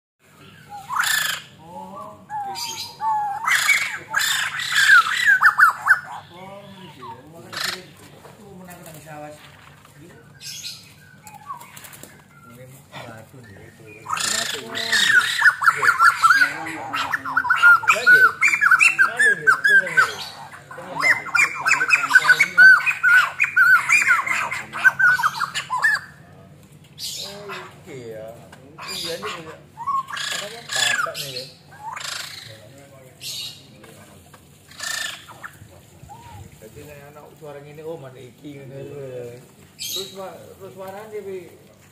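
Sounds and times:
harsh rasping bird calls: 0.2s - 41.6s
bird whistled calls: 10.6s - 12.4s.

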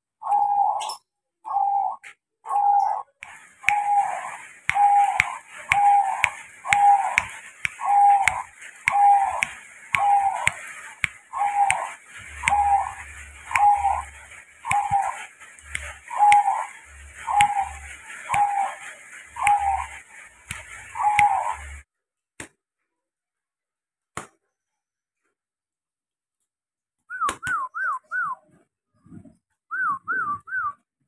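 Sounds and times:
dove cooing: 0.2s - 10.7s, 11.3s - 21.8s
whistled notes: 2.5s - 21.8s, 29.7s - 30.8s
faint clicks: 3.2s - 21.8s.

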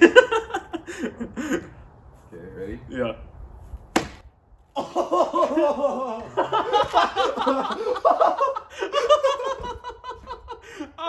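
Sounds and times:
people laughing hard: 0.0s - 1.7s, 4.8s - 11.0s.

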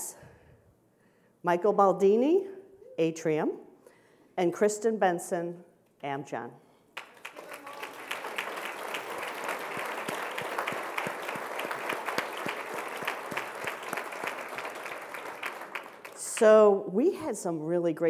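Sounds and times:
audience applauding: 7.0s - 16.4s.

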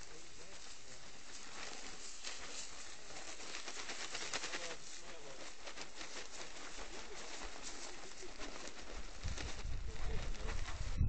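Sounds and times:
steady hiss: 0.0s - 10.8s.

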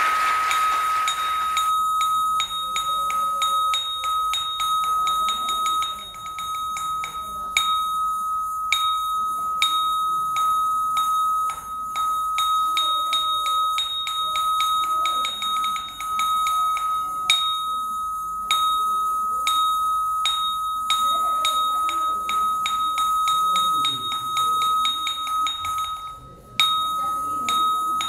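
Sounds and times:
metal bell ringing: 0.0s - 28.0s
murmur of voices: 0.0s - 28.0s.

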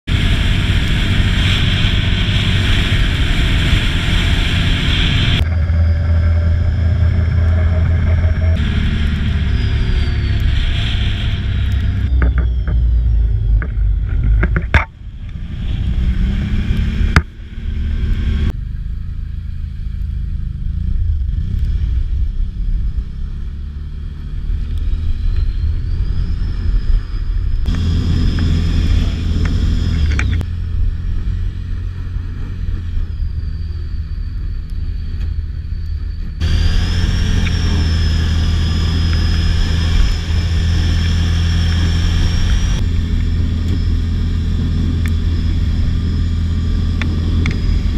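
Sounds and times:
quad bike engine revving: 15.4s - 19.2s, 27.6s - 33.0s, 36.4s - 47.9s.

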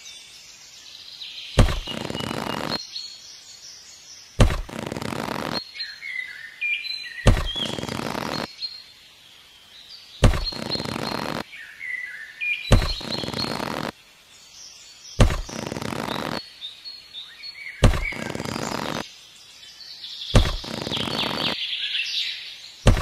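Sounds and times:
birds chirping: 0.0s - 23.0s
soft thumps: 1.6s - 2.4s, 4.4s - 5.0s, 7.3s - 8.1s, 10.2s - 11.4s, 12.7s - 13.8s, 15.2s - 16.0s, 17.8s - 19.0s, 20.4s - 21.4s.

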